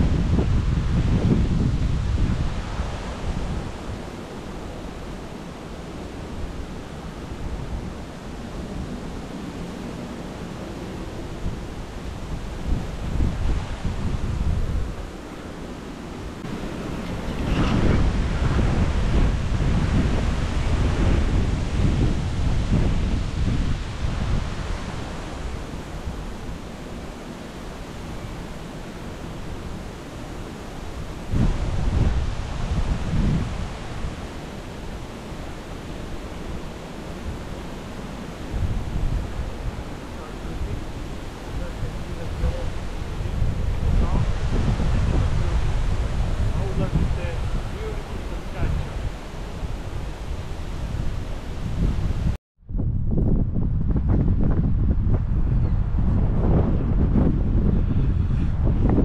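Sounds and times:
strong wind through trees: 0.0s - 59.0s
wind buffeting microphone: 0.0s - 59.0s.

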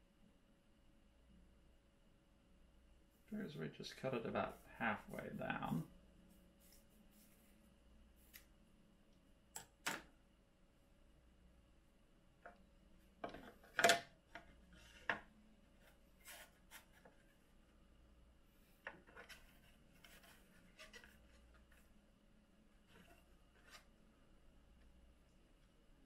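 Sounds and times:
filter sheet rubbing and scraping: 4.4s - 8.3s, 15.8s - 17.4s, 18.6s - 21.9s.

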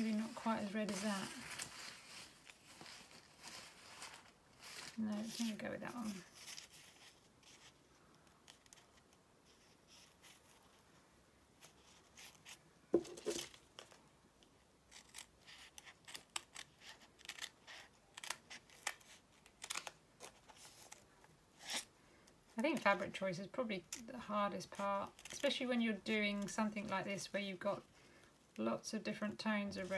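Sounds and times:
handling sound: 0.0s - 7.2s, 12.9s - 14.0s.

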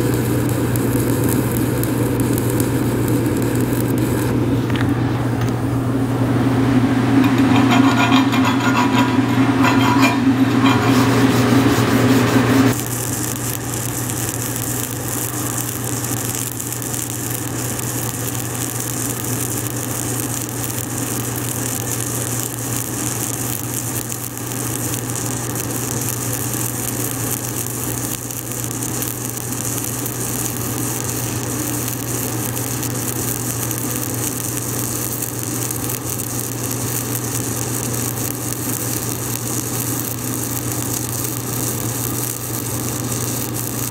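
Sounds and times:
welding arc crackling sizzle: 0.0s - 5.6s, 6.5s - 43.9s
low hum: 0.4s - 17.4s.

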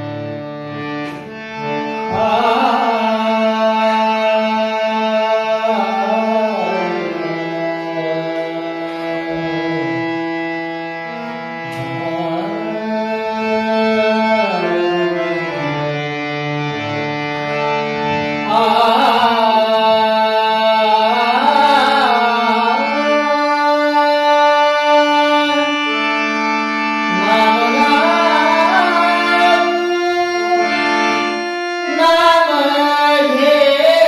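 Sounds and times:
sustained melodic accompaniment: 0.0s - 34.0s
man singing devotional song: 1.8s - 10.6s, 11.5s - 16.0s, 18.2s - 34.0s.

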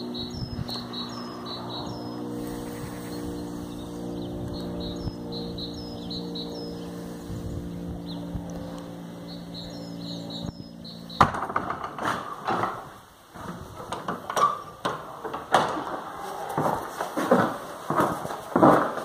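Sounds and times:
bird chirps: 0.0s - 8.4s, 9.2s - 11.3s
low steady hum: 0.0s - 11.5s
wooden knocks and clunks: 11.2s - 19.0s.

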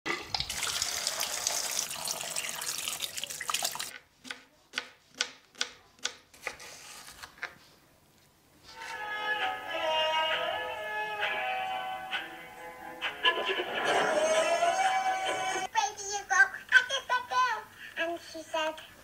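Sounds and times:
water running from a tap: 0.3s - 3.9s.

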